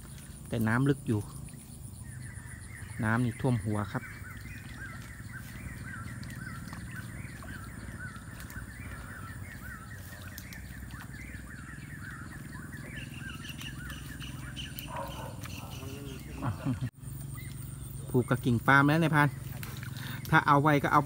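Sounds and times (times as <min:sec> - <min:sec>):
animal chirps: 0:02.0 - 0:17.6.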